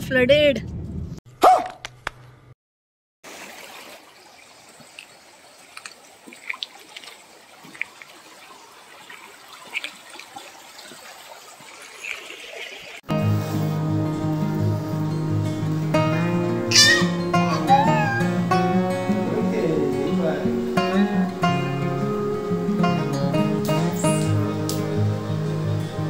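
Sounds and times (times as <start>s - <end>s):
floodwater trickling over mud: 3.2s - 13.0s.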